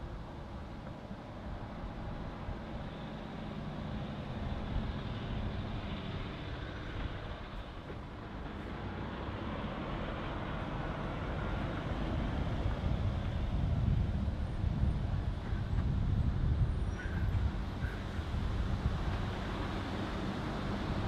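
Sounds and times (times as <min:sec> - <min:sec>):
truck diesel engine: 0:01.4 - 0:13.0.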